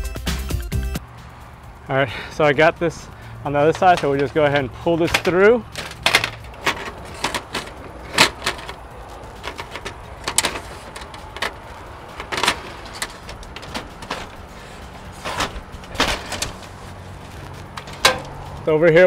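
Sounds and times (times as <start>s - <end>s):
cable scraping through soffit: 5.0s - 18.5s.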